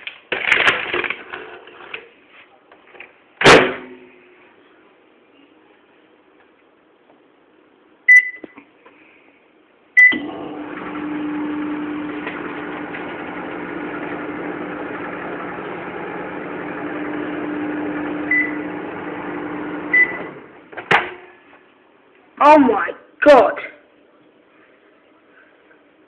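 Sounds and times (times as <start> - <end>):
microwave keypad beeps: 8.1 - 8.6, 18.3 - 18.6, 19.9 - 20.3
microwave humming with fan: 10.0 - 20.7.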